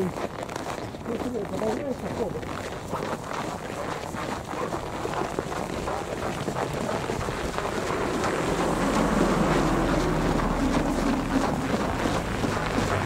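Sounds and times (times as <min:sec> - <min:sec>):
footsteps on packed snow: 0:00.0 - 0:13.0
wind buffeting microphone: 0:00.0 - 0:13.0
vehicle passing: 0:04.7 - 0:13.0.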